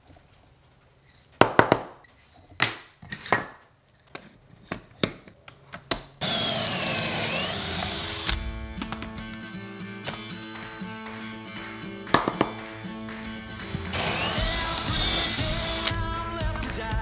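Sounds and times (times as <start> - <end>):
cordless drill boring wood: 6.2 - 8.4, 13.9 - 16.0.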